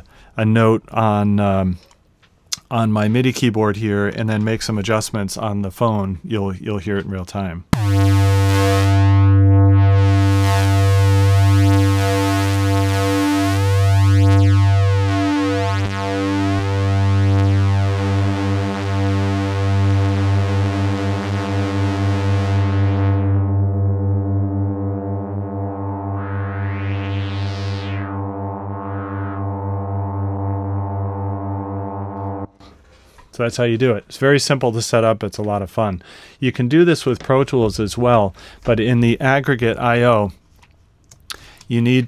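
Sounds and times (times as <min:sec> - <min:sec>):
low sustained synthesizer note: 0:07.8 - 0:32.6.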